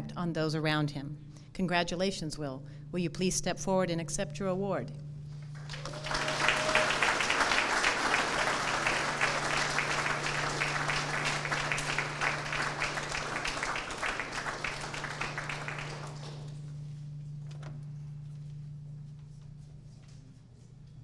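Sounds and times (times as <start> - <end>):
audience applauding: 5.5 - 16.6.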